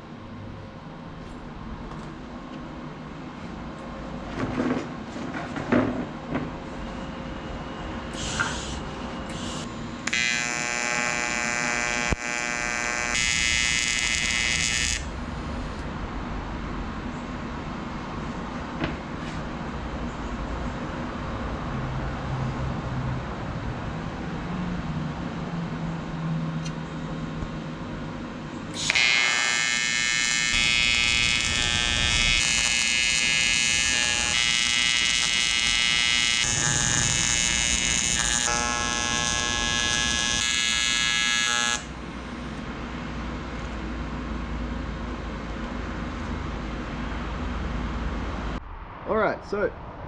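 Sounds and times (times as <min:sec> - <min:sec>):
welding arc buzzing: 0:08.1 - 0:15.8, 0:28.7 - 0:42.5.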